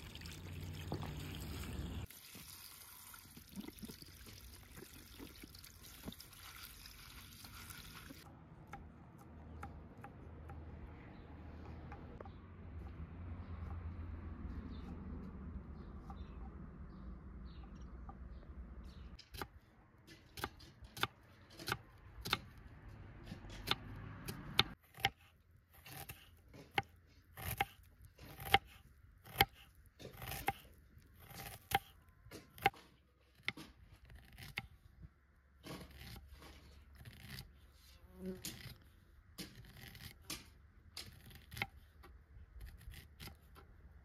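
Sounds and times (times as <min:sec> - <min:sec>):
blade cutting food: 0:23.3 - 0:34.7.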